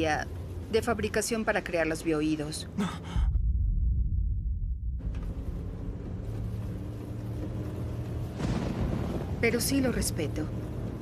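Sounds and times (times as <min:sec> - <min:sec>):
car engine humming: 0:00.0 - 0:03.3, 0:04.3 - 0:11.0
deep low rumble: 0:02.8 - 0:11.0.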